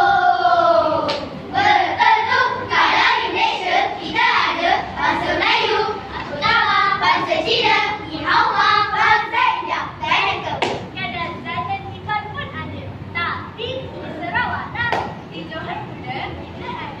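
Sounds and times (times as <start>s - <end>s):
children's choir singing: 0.0s - 10.8s.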